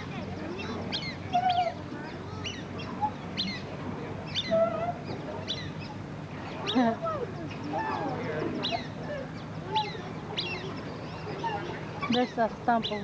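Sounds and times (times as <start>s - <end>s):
ducks peeping: 4.3s - 13.0s.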